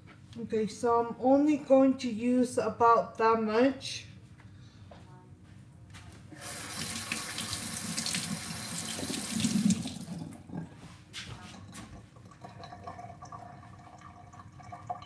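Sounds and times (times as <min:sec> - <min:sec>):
tap running into sink: 0:06.7 - 0:10.4.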